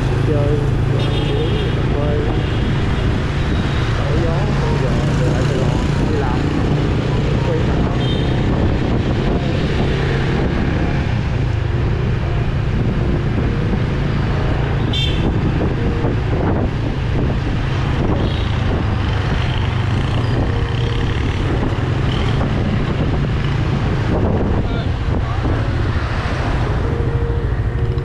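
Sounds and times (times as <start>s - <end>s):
motorcycle engine hum: 0.0s - 28.0s
road and traffic noise: 0.0s - 28.0s
vehicle horn toot: 14.8s - 15.3s.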